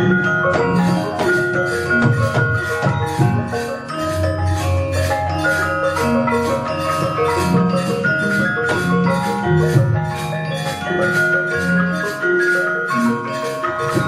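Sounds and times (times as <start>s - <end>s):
gamelan ensemble playing: 0.0s - 14.0s.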